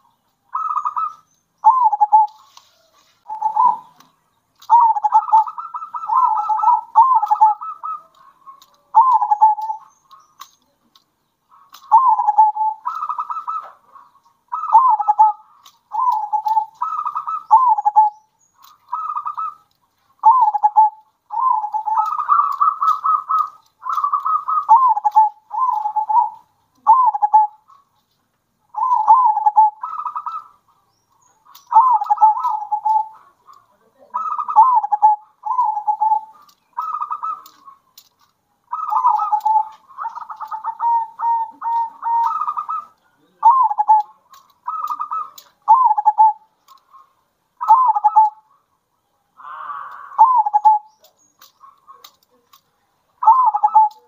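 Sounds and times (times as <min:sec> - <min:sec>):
doves cooing: 0:00.0 - 0:28.0, 0:28.7 - 0:54.0.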